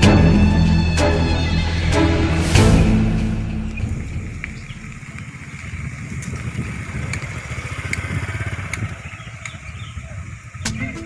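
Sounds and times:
small motorcycle engine putter: 5.5 - 10.6.

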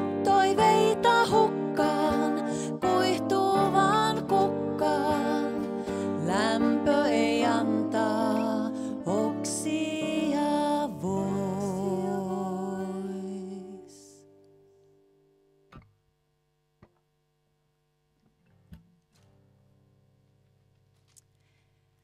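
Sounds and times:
women singing in harmony: 0.0 - 14.1
acoustic guitar: 0.0 - 15.1.

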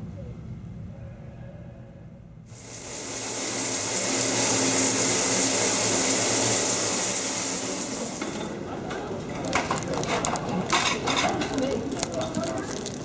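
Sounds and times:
shower water spraying: 2.5 - 8.5.

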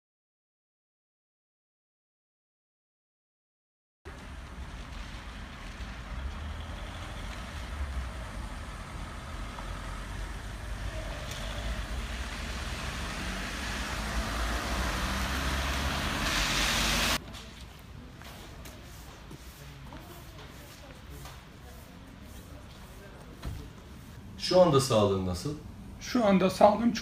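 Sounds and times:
outdoor ambience: 4.1 - 27.0
tyres hissing on wet road: 4.2 - 17.2.

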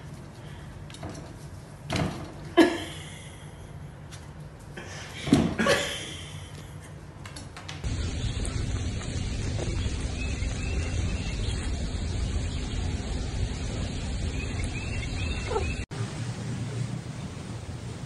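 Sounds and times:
low rumble: 7.9 - 17.9.

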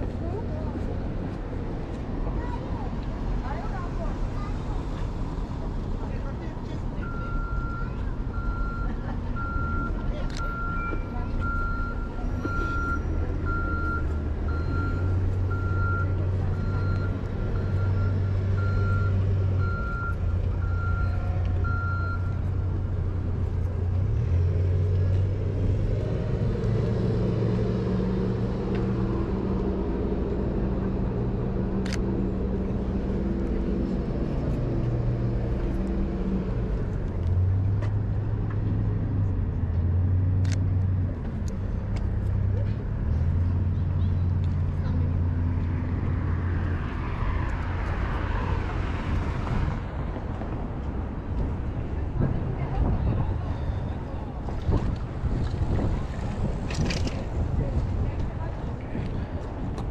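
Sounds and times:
city street noise: 0.0 - 59.9
heavy vehicle engine rumble: 0.0 - 59.9
truck reversing alarm beeping: 7.0 - 22.8.

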